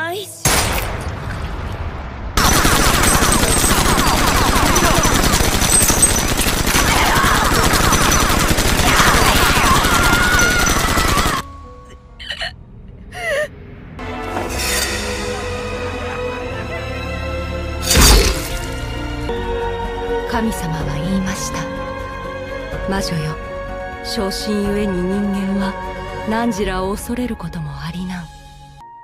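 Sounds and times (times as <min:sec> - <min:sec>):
rapid gunfire: 0:02.4 - 0:11.4
music: 0:08.8 - 0:29.0.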